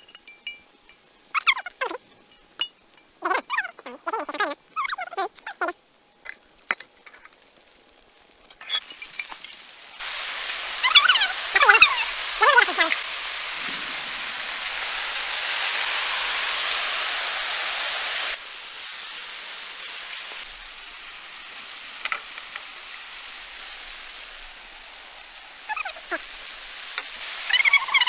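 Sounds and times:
steady rain: 5.8 - 28.0.

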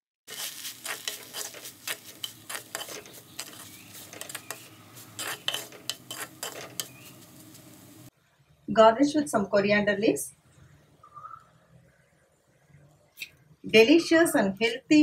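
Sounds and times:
spoon scraping clay pot: 0.3 - 7.5.

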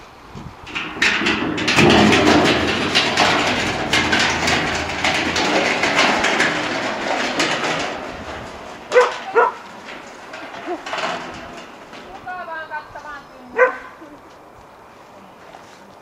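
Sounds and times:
plastic drum rolling over gravel: 0.4 - 14.3
dog barking: 9.0 - 9.6, 13.6 - 14.0.

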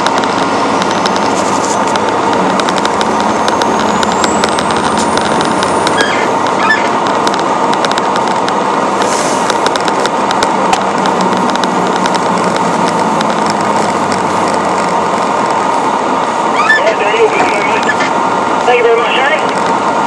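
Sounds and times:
small clicks and crackles: 0.0 - 16.4
truck engine and road noise: 0.0 - 20.0.

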